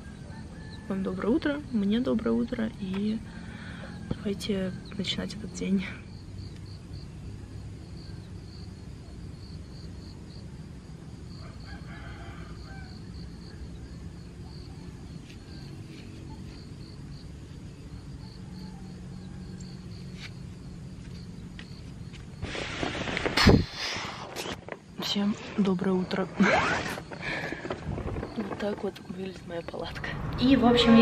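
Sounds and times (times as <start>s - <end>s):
faint rooster crowing: 0.0s - 1.2s, 3.5s - 5.0s, 11.3s - 14.0s, 18.2s - 20.0s
insect chirping: 0.0s - 31.0s
steady low rumble: 27.6s - 31.0s.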